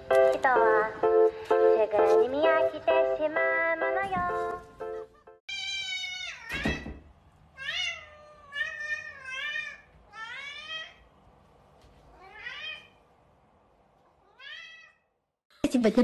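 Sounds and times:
cat meowing: 5.5 - 6.9, 7.6 - 11.0, 12.1 - 13.0, 14.2 - 15.1.

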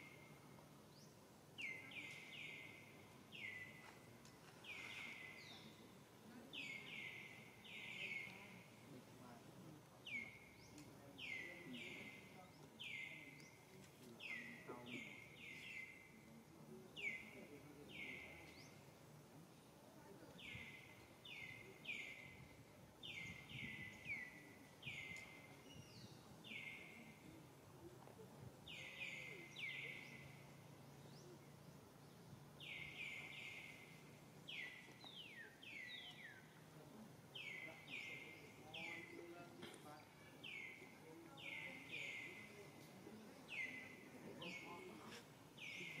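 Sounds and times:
bird chirping: 28.6 - 36.6.

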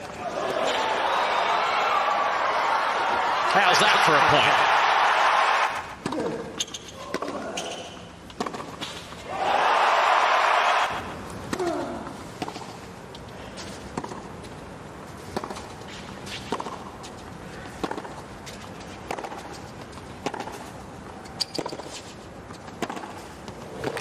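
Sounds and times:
low crowd background: 0.0 - 21.4
tennis ball struck by rackets: 8.3 - 9.0, 15.3 - 15.7, 17.8 - 18.2, 19.1 - 19.6, 20.2 - 20.6, 22.8 - 23.2.

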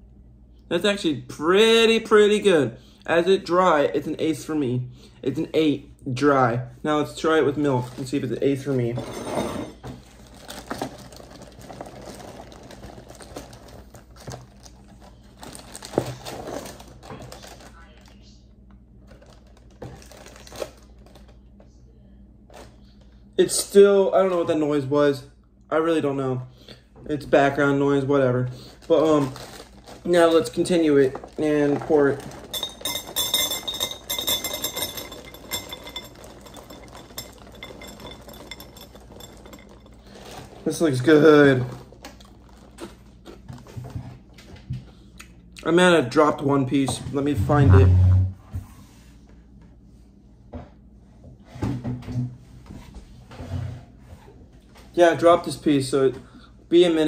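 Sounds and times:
plastic bag crinkling: 10.1 - 18.2, 19.0 - 21.4, 28.6 - 43.7.

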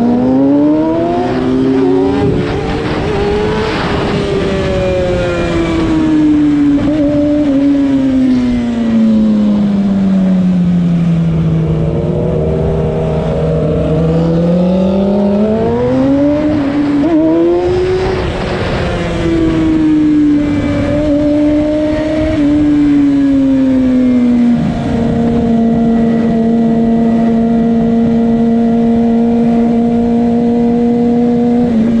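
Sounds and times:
wind on microphone: 0.0 - 9.8, 11.1 - 32.0
motorcycle engine: 0.0 - 32.0.

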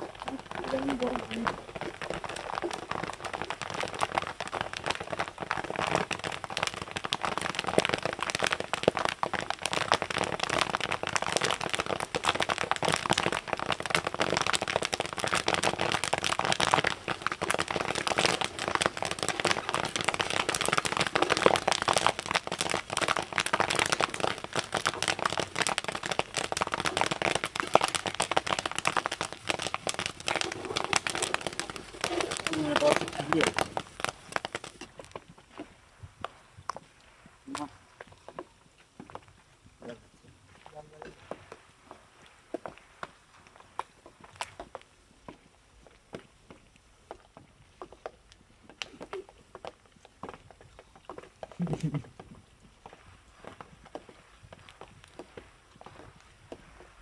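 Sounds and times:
corn kernels popping: 0.0 - 35.2
oil sizzling: 0.0 - 35.2.

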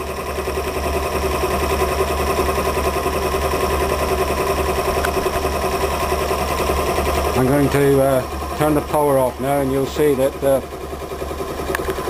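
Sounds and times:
engine mechanical whirr and clatter: 0.0 - 12.0.

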